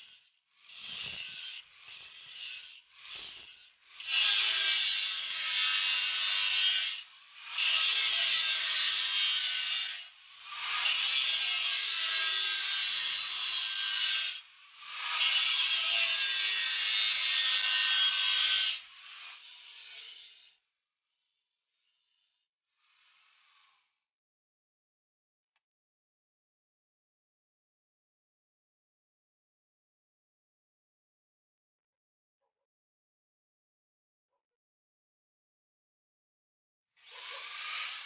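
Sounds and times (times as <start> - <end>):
angle grinder grinding steel: 0.0 - 24.0, 37.0 - 38.0.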